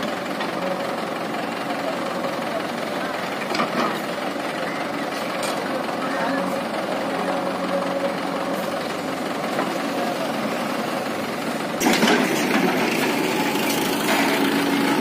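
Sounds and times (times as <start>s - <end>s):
diesel engines running: 0.0s - 15.0s
backhoe digging in soil: 11.8s - 15.0s.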